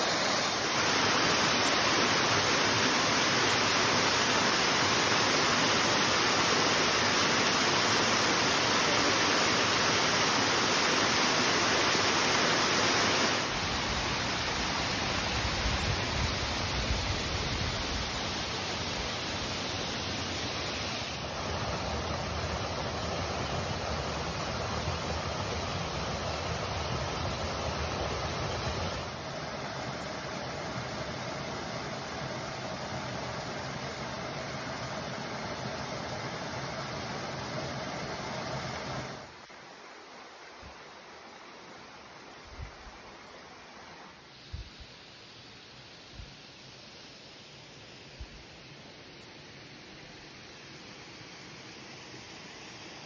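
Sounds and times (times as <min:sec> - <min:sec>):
waterfall rushing: 0:00.0 - 0:41.9.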